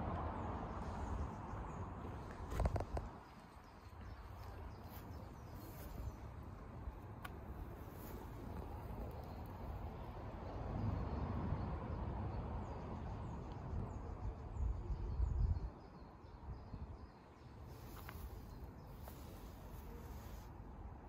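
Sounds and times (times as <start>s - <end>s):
wind buffeting microphone: 10.6s - 17.1s.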